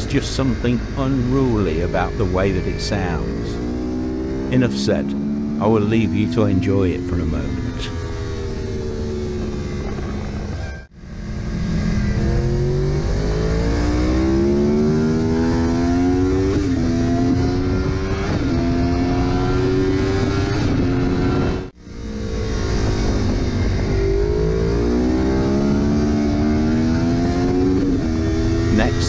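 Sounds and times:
motorcycle engine accelerating: 0.0s - 29.0s
wind rush: 20.2s - 24.6s.

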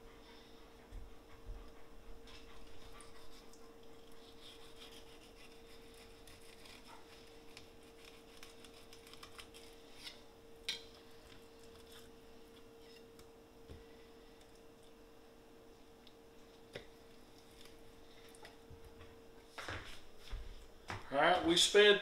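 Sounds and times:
faint steady hum: 0.0s - 22.0s
knife scraping cutting board: 4.2s - 10.2s.

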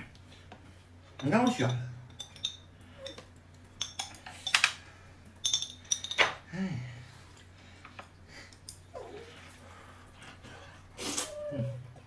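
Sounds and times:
dishes and utensils clinking: 1.1s - 4.8s, 5.4s - 6.4s.

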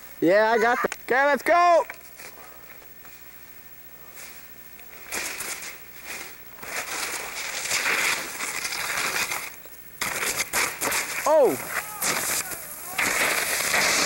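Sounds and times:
snowboard scraping crusty snow: 4.1s - 14.0s.

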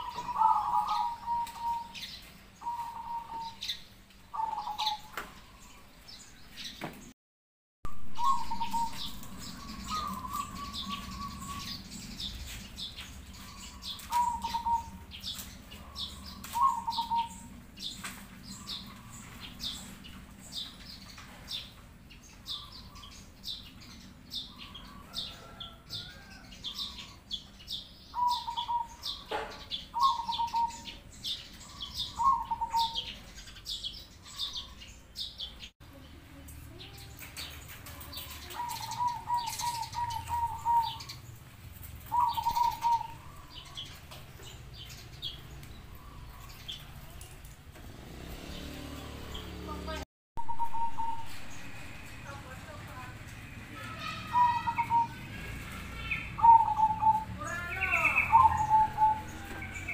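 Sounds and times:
dove cooing: 0.0s - 5.6s, 8.1s - 12.2s, 13.4s - 19.8s, 28.1s - 31.0s, 31.6s - 33.3s, 38.0s - 41.3s, 41.9s - 44.2s, 50.4s - 51.8s, 53.8s - 57.3s, 57.9s - 59.9s
small birds chirping: 0.0s - 7.2s, 7.9s - 59.9s.

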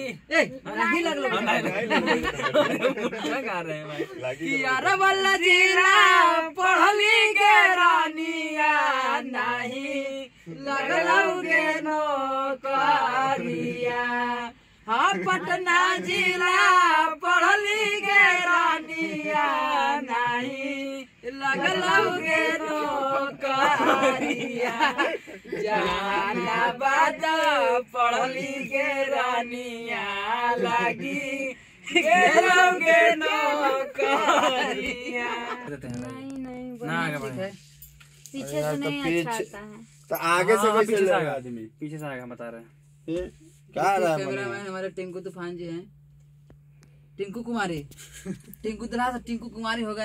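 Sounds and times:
man singing unaccompanied: 0.0s - 36.2s.

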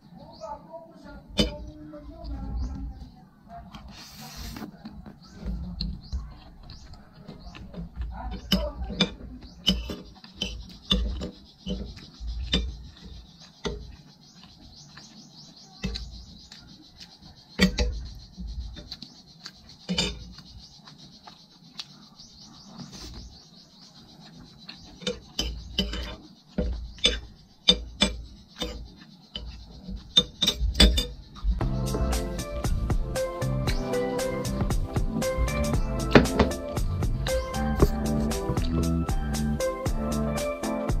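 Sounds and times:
cutlery scraping ceramic plate: 8.3s - 13.0s, 25.0s - 31.2s.

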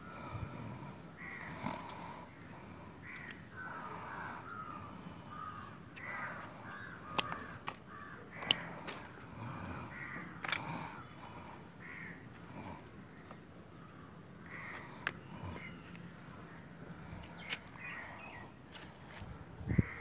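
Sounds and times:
birds calling: 0.0s - 20.0s
sharp clicks: 7.1s - 8.8s.

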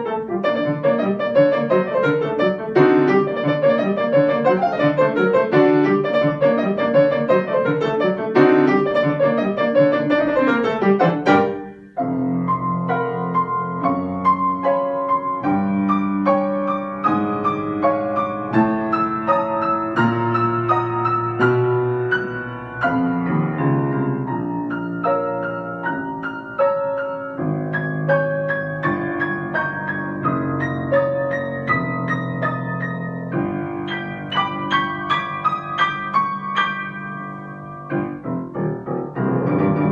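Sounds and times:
solo piano improvisation: 0.0s - 39.9s.

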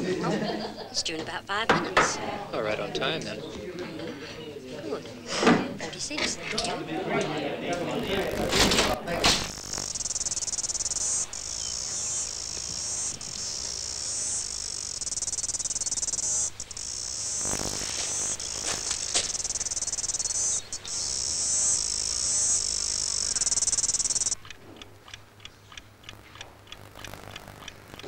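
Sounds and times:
insects chirring: 6.3s - 28.0s.

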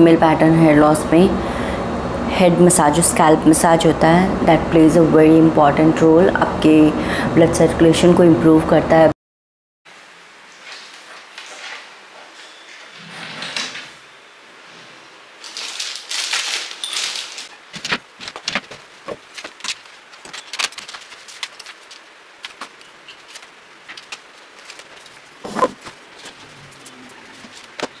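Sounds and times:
rustling: 14.6s - 28.0s.

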